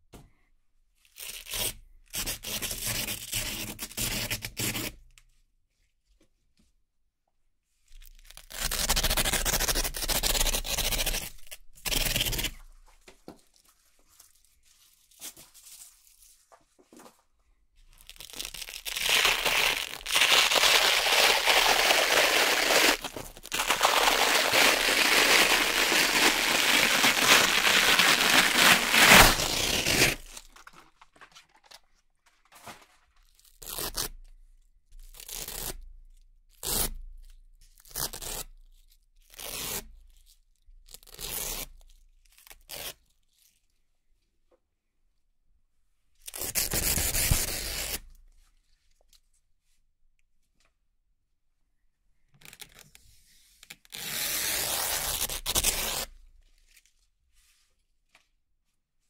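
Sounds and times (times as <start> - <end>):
velcro strips ripping apart: 8.0 - 12.6, 18.0 - 31.8, 33.4 - 34.2, 46.2 - 48.1, 53.7 - 56.8.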